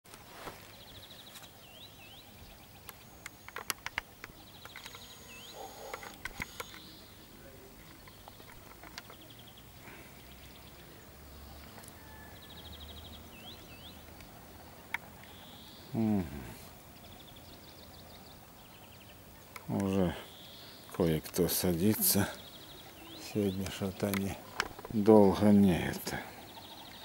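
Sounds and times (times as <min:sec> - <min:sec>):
songbird trilling: 0:00.8 - 0:10.8, 0:11.6 - 0:27.0
sharp clicks: 0:02.8 - 0:06.9, 0:23.6 - 0:25.0.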